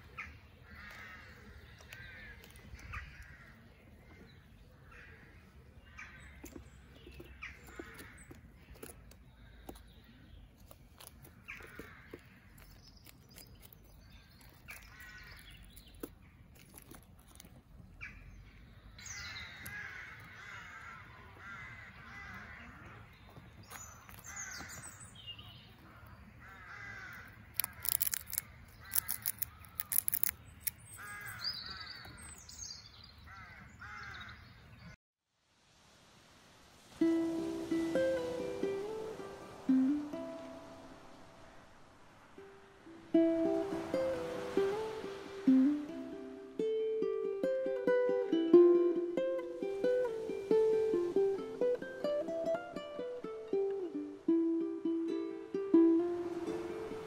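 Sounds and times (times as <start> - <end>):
crows cawing: 0.0 - 6.6, 7.4 - 8.4, 11.3 - 12.6, 14.7 - 15.5, 19.1 - 23.2, 23.8 - 25.0, 25.8 - 30.1, 31.0 - 32.2, 33.3 - 34.4.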